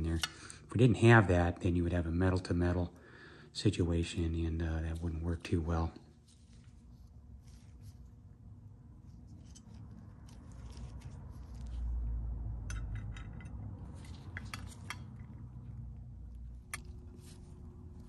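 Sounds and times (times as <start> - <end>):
metal parts clinking: 12.6 - 15.5.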